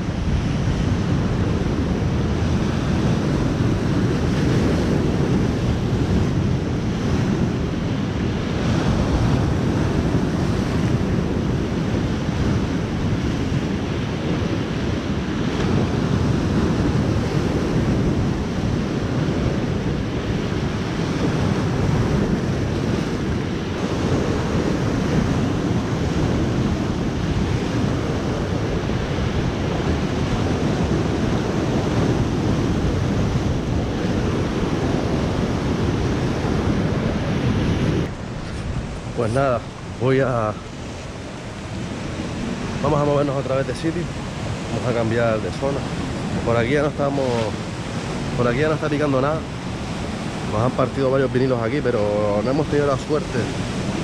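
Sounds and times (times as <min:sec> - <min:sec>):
surf washing over rocky shore: 0:00.0 - 0:54.0
wind buffeting microphone: 0:00.0 - 0:54.0.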